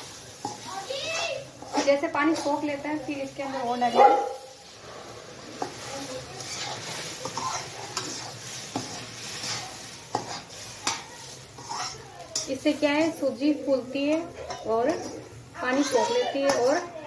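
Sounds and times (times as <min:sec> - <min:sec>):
semolina sizzling: 0:00.0 - 0:17.0
metal ladle scraping pan: 0:01.6 - 0:02.7, 0:04.6 - 0:12.6, 0:14.1 - 0:16.9.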